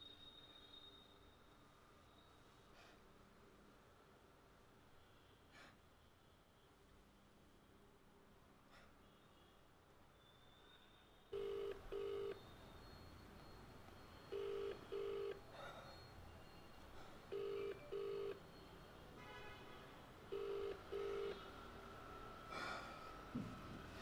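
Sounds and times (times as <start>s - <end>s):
phone ringback tone: 11.4s - 15.5s, 17.3s - 18.7s, 20.3s - 21.5s.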